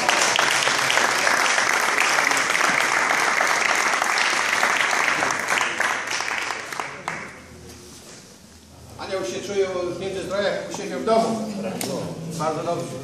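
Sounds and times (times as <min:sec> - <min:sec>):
audience applause: 0:00.0 - 0:07.4.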